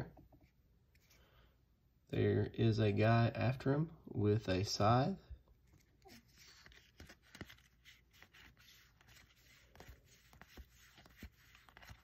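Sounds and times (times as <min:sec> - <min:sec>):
cards sliding over each other: 0:00.4 - 0:01.3, 0:05.7 - 0:12.0.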